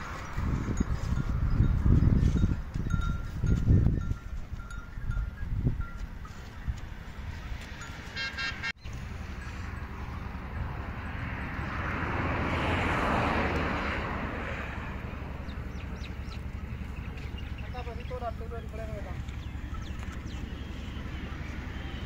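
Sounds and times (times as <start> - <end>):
traffic rumble: 0.0 - 22.0
vehicle horn toot: 8.1 - 8.8.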